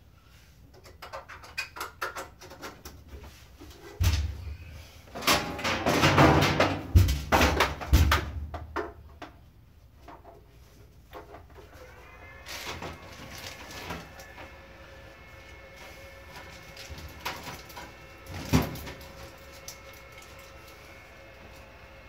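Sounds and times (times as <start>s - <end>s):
scraping and rustling: 10.4s - 14.6s.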